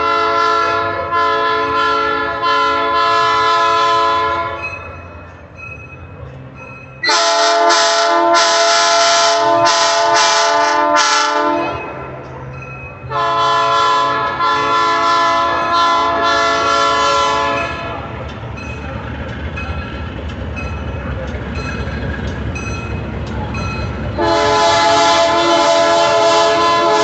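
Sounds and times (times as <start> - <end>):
locomotive horn blasts: 0.0 - 4.7, 7.0 - 12.2, 13.0 - 18.0, 24.2 - 27.0
locomotive engine rumbling: 0.0 - 27.0.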